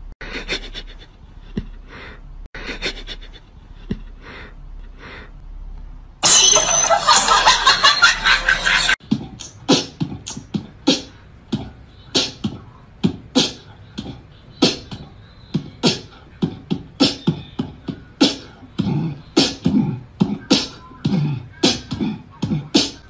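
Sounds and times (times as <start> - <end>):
beatboxing kick and snare: 9.0 - 23.0.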